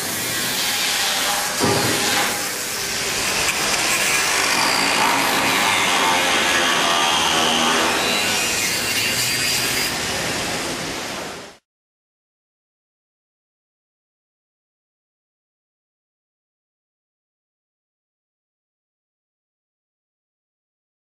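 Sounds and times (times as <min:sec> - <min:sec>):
plasma torch hissing: 0:01.4 - 0:05.4.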